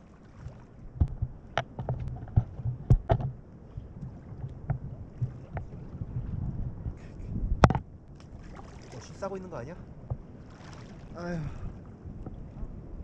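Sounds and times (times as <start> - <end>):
short sharp splashes or knocks: 0.0 - 6.4, 7.6 - 9.3, 10.1 - 11.2
water sloshing and splashing: 0.0 - 7.0, 7.6 - 13.0.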